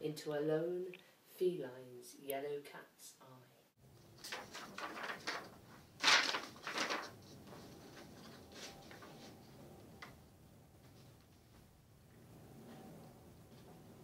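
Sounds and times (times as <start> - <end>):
paper rustling: 3.9 - 10.2.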